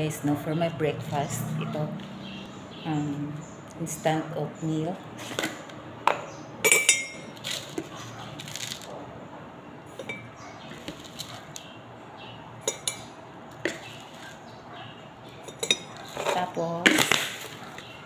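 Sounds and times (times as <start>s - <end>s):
metal spoon clinking on glass: 6.6s - 7.3s, 10.0s - 10.3s, 12.6s - 13.1s, 15.4s - 17.1s
dry oats rustling: 7.4s - 8.9s.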